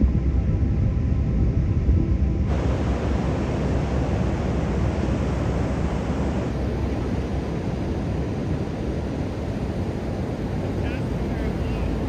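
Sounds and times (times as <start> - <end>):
wind: 0.0 - 12.0
wind rumbling on microphone: 0.0 - 12.0
ocean surf: 2.5 - 12.0.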